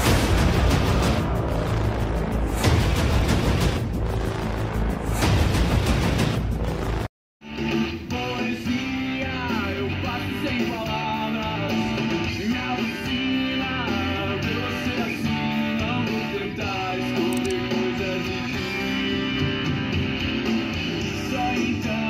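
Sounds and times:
song with guitar and singing: 0:07.5 - 0:22.0.

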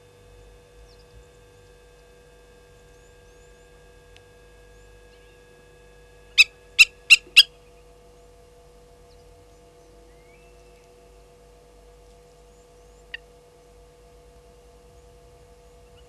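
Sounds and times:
bird giving sharp metallic alarm calls: 0:06.4 - 0:07.6.

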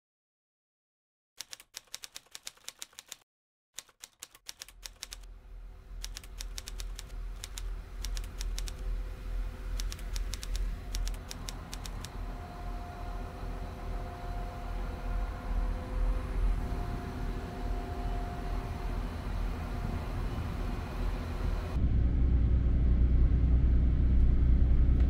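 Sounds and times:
typewriter key clicks: 0:01.4 - 0:03.2, 0:06.0 - 0:08.8, 0:09.8 - 0:12.1
low steady rumble: 0:05.3 - 0:25.0.

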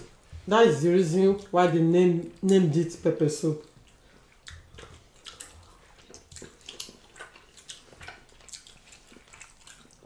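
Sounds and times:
wet chewing and smacking: 0:03.5 - 0:10.0.

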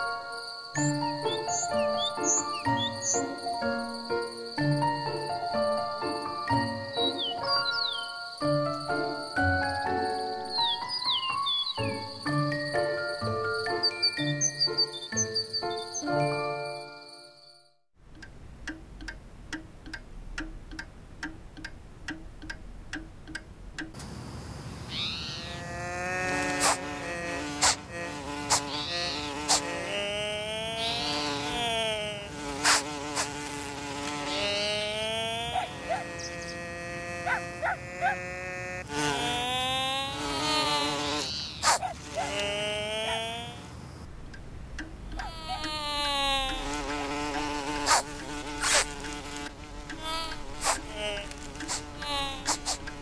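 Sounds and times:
faint regular ticking: 0:18.0 - 0:24.1, 0:44.0 - 0:53.0
sharp clicks: 0:18.1 - 0:24.1, 0:44.0 - 0:53.0
cartoon bee buzzing: 0:24.9 - 0:43.8, 0:44.8 - 0:53.0.

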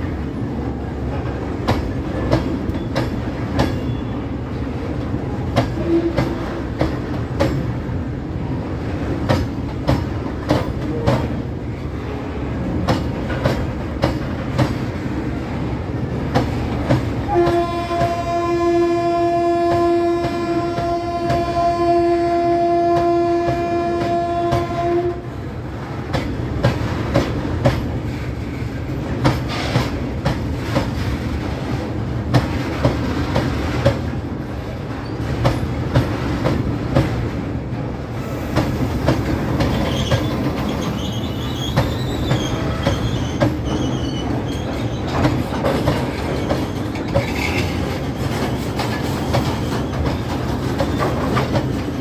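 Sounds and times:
rumble of rolling train: 0:00.0 - 0:52.0
train horn: 0:05.8 - 0:06.6, 0:17.2 - 0:25.4.

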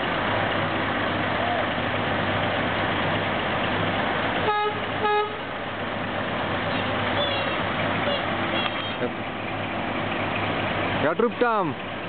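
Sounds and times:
truck engines idling: 0:00.0 - 0:12.0.

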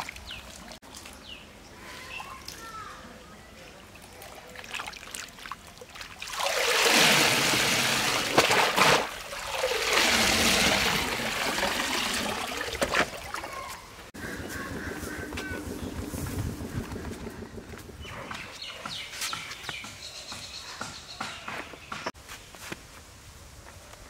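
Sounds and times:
water pouring and splashing: 0:00.0 - 0:01.4, 0:03.8 - 0:14.1.

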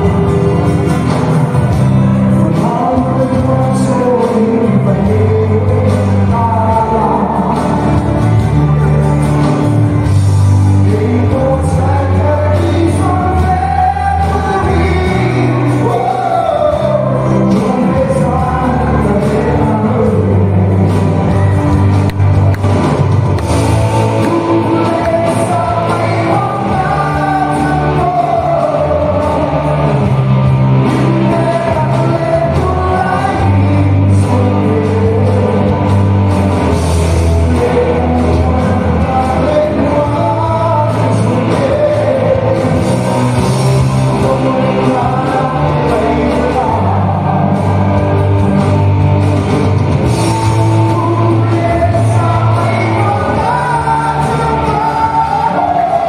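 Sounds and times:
man singing into microphone: 0:00.0 - 0:21.8, 0:24.0 - 0:48.8, 0:50.2 - 0:56.0
rock music over loudspeakers: 0:00.0 - 0:56.0.

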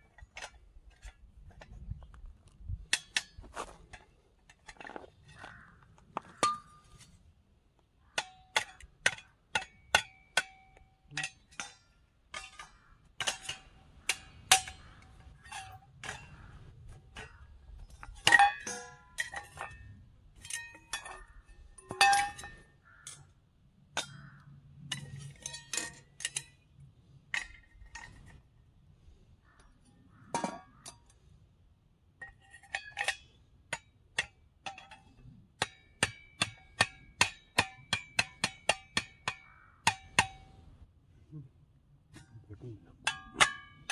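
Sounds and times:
metal camping gear clinking: 0:08.2 - 0:28.6, 0:43.0 - 0:43.9.

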